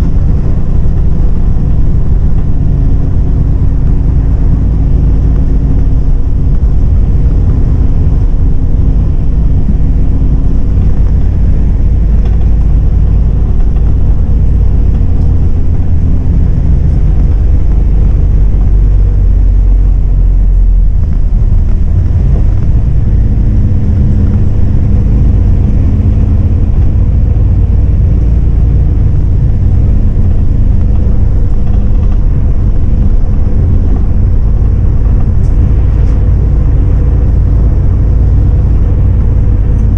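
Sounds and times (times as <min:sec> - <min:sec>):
bus diesel engine drone: 0:00.0 - 0:39.9
road rumble: 0:00.0 - 0:39.9.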